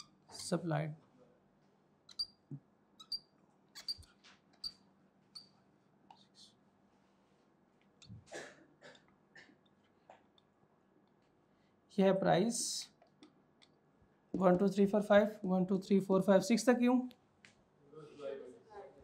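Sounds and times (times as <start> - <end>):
marker squeaking on whiteboard: 0.0 - 0.6, 2.1 - 6.5.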